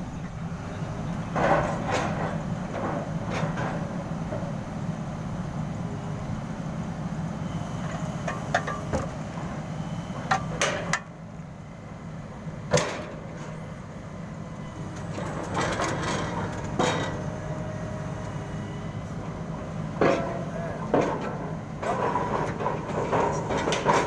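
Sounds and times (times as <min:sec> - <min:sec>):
drilling rig engine running: 0:00.0 - 0:24.0.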